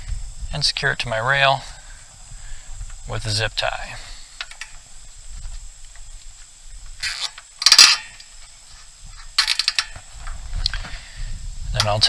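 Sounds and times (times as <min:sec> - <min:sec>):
zip tie ratcheting: 0:07.0 - 0:08.3.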